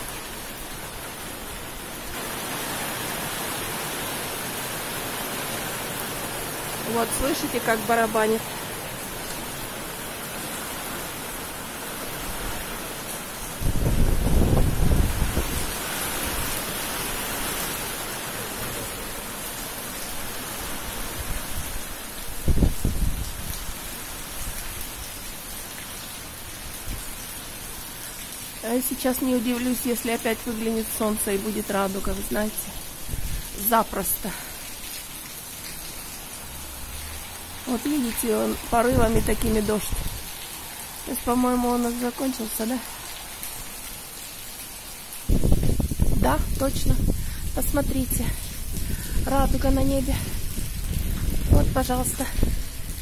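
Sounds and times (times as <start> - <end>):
rain drumming on a canopy: 0.0 - 53.0.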